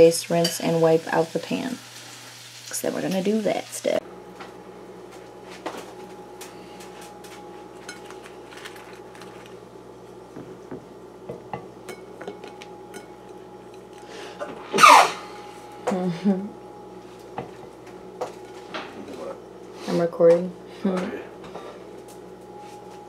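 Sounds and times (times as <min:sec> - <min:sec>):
low background hum: 0:00.0 - 0:23.0.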